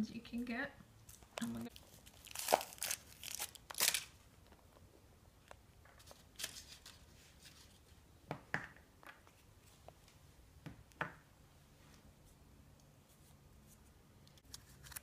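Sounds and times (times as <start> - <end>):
foil wrapper crinkling and tearing: 1.1 - 4.2.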